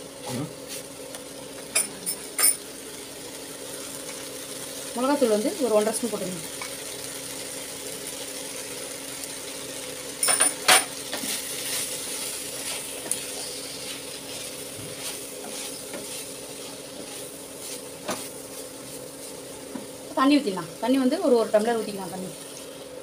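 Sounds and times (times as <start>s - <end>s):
faint sizzle: 0.0s - 23.0s
spatula scraping frying pan: 11.1s - 19.9s.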